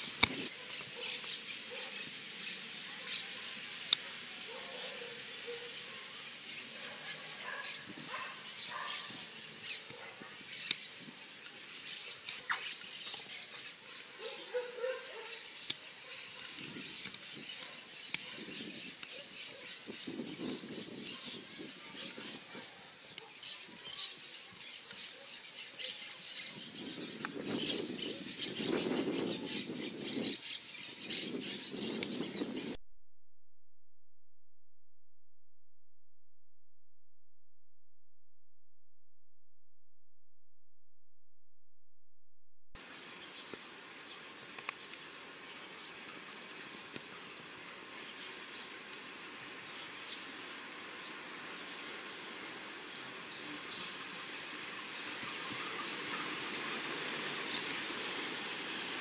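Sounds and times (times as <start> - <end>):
birds chirping and calling: 0.0 - 32.8.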